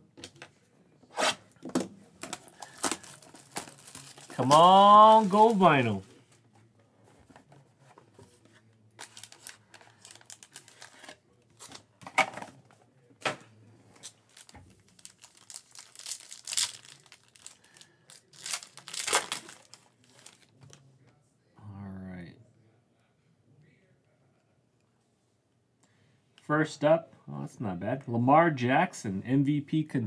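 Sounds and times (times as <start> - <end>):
foil card pack crinkling and tearing: 2.2 - 5.9, 9.0 - 11.2, 14.3 - 20.5.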